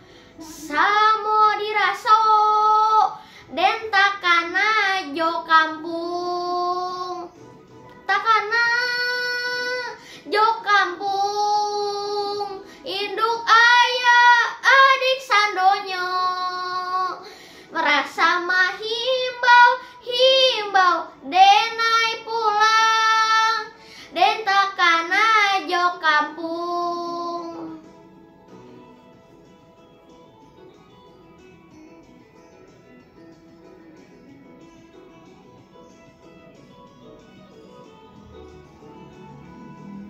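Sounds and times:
boy singing: 0:00.4 - 0:07.3, 0:08.1 - 0:27.8.

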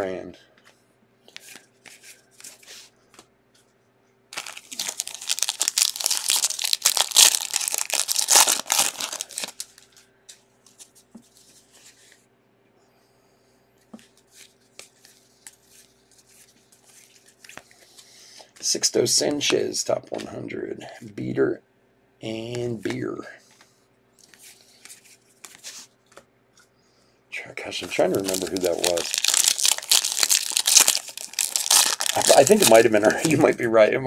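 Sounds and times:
foil wrapper tearing and crinkling: 0:04.3 - 0:09.9, 0:27.9 - 0:33.5.

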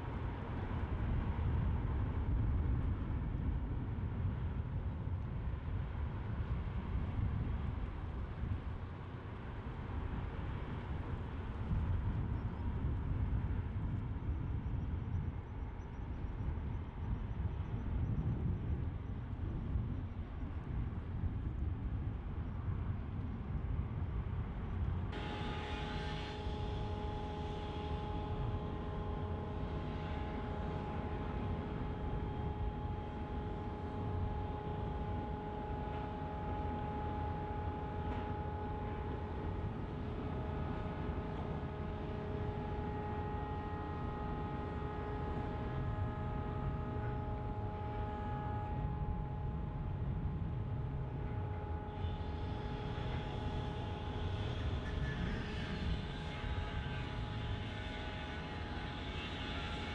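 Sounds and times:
machinery hum: 0:00.0 - 0:22.8, 0:23.5 - 0:59.9.

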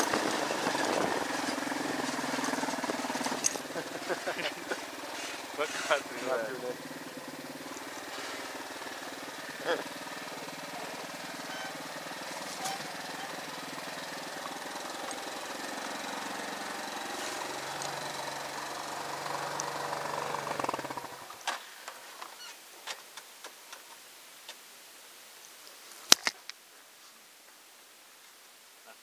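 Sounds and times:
motorcycle engine running: 0:00.0 - 0:21.5.

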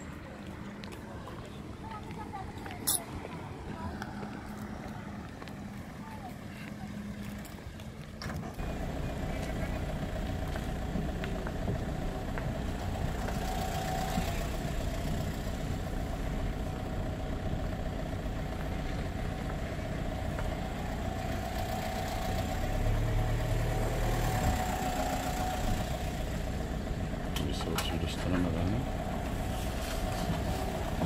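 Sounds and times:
engine idling: 0:08.2 - 0:31.0.

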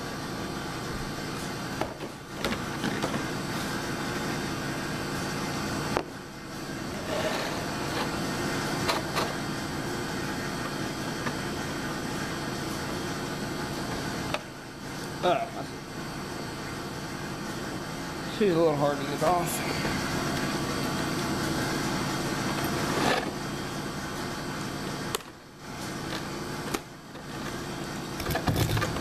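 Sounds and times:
steady background hum: 0:00.0 - 0:29.0.

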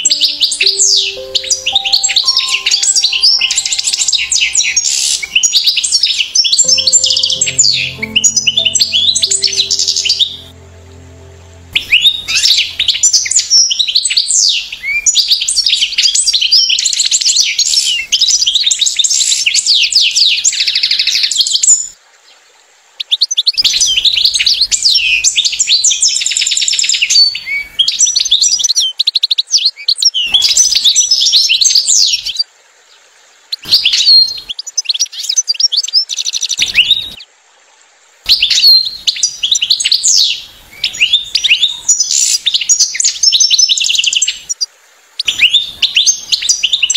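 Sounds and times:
goldfinch twittering: 0:00.0 - 0:14.5.

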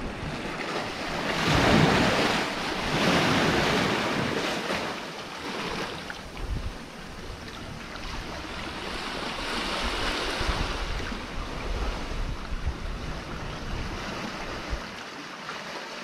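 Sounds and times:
wind buffeting microphone: 0:00.0 - 0:04.8, 0:05.4 - 0:15.0
surf washing against rocks: 0:00.0 - 0:16.0.

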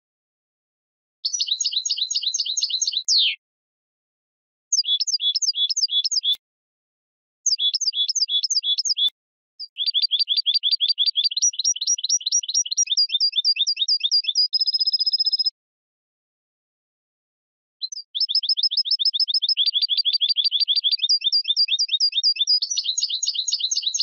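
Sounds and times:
finch singing: 0:01.2 - 0:03.4, 0:04.7 - 0:06.4, 0:07.5 - 0:15.5, 0:17.8 - 0:24.0.

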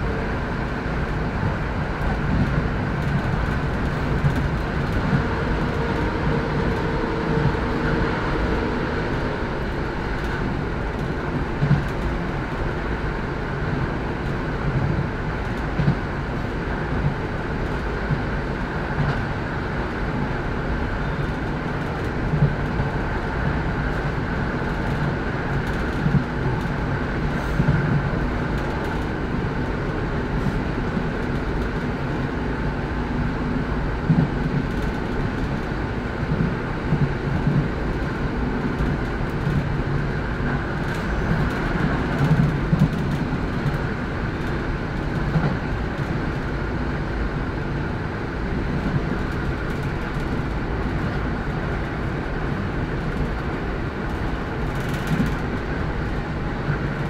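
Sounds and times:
train diesel engine rumble: 0:00.0 - 0:57.0
train wheels knocking on rails: 0:34.0 - 0:46.4.

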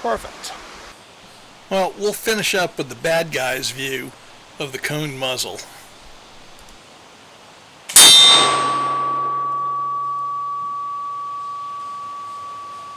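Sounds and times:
clear ringing tone: 0:08.1 - 0:12.9.

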